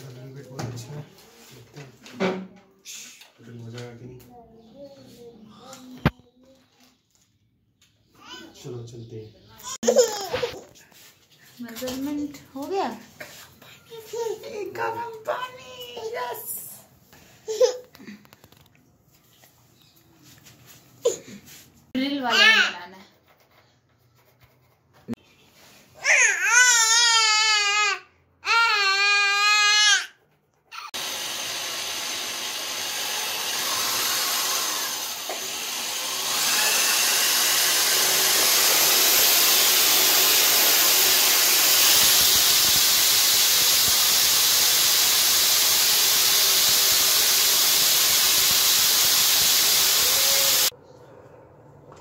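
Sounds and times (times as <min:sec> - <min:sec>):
child crying: 0:26.0 - 0:30.1
electric drill boring into tile: 0:30.9 - 0:50.7.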